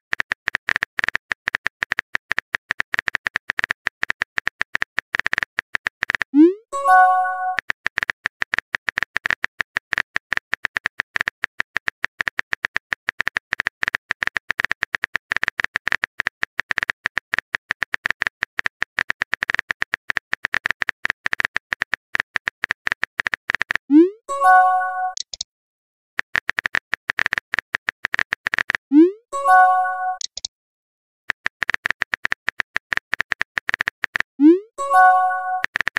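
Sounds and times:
phone keyboard tapping clicks: 26.2 - 28.8, 29.5 - 30.5, 31.3 - 34.3
message sent swoop and chime: 34.4 - 35.6.

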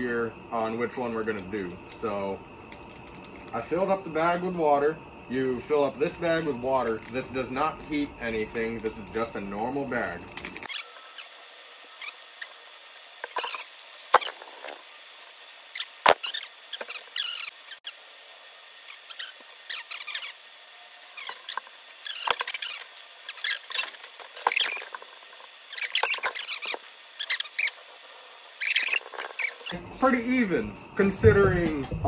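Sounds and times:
plastic pouches crinkling: 2.6 - 4.0, 6.8 - 9.2, 9.9 - 11.3.

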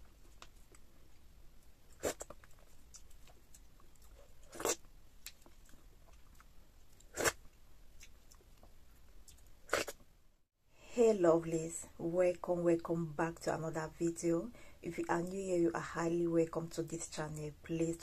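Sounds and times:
wet mouth eating sounds: 1.9 - 10.0.

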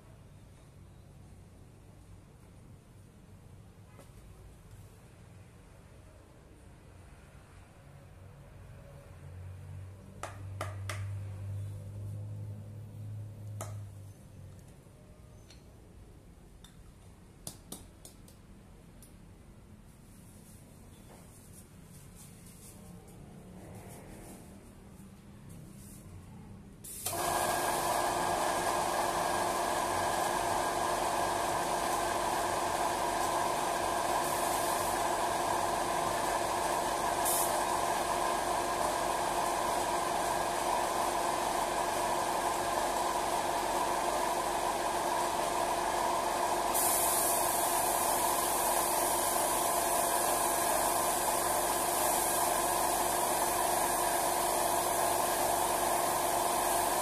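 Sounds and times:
air compressor running: 26.8 - 57.0
spray gun hissing: 26.9 - 42.5, 43.8 - 57.0.

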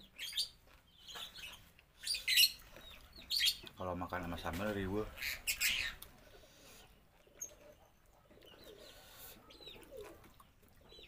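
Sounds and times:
birds chirping: 0.0 - 11.0
dove cooing: 7.3 - 11.0.

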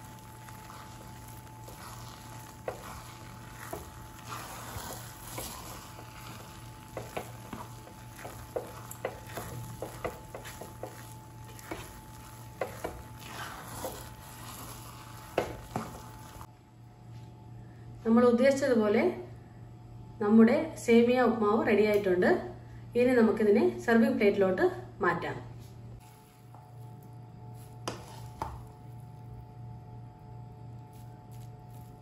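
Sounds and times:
spatula scraping a pan: 0.0 - 16.5.

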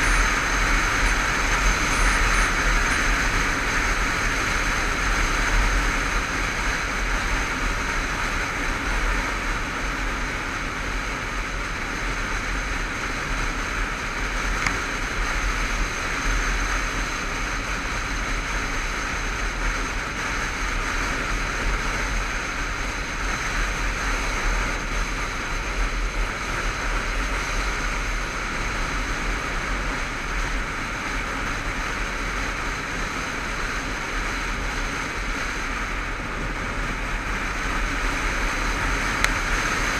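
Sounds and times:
motorcycle engine cruising: 0.0 - 39.9.

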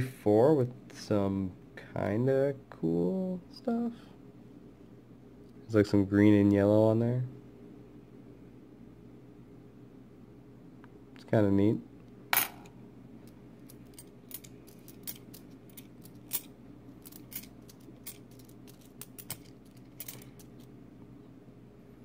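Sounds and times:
faint low hum: 0.0 - 22.0
coins clinking together: 13.6 - 20.7.

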